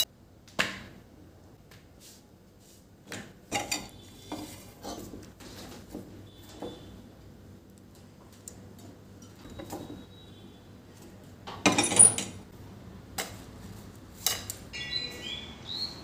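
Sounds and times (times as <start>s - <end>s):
birds chirping: 14.7s - 16.0s.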